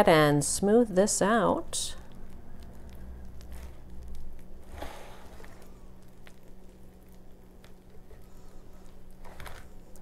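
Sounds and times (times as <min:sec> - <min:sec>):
spatula squishing and scraping: 0:02.6 - 0:10.0.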